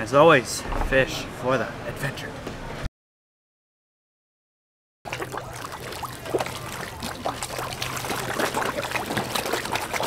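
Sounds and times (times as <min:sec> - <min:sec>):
fish splashing at water surface: 0:05.1 - 0:10.0.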